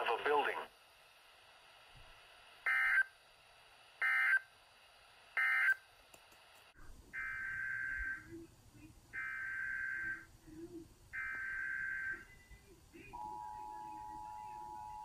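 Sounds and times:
two-tone attention signal: 0:13.2 - 0:15.0.

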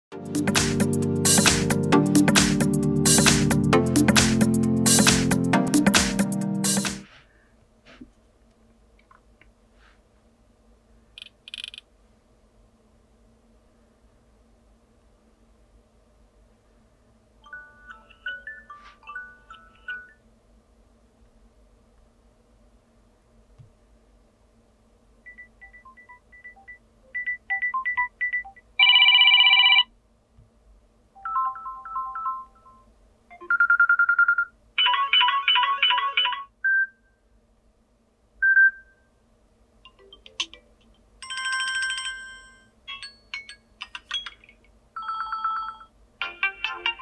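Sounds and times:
phone alarm tones: 0:25.3 - 0:29.9, 0:31.2 - 0:37.0.

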